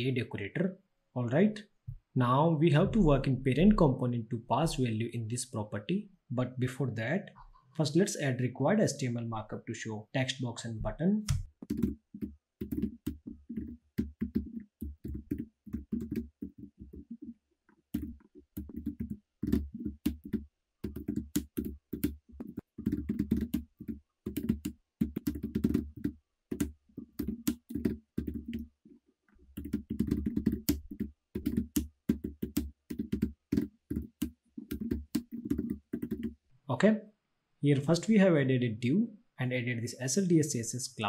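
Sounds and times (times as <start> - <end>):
typing on computer keyboard: 11.3 - 17.3, 17.9 - 28.7, 29.5 - 36.4.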